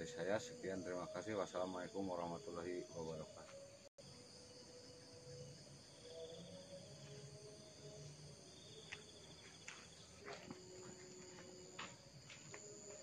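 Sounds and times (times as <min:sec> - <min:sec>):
insects buzzing: 0:00.0 - 0:13.0
pulsing insect trill: 0:00.0 - 0:13.0.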